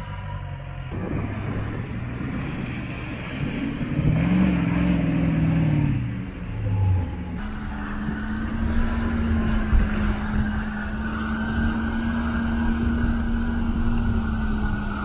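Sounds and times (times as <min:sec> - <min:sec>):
vehicle engine running: 0:00.0 - 0:15.0
water rushing and splashing: 0:01.3 - 0:05.6.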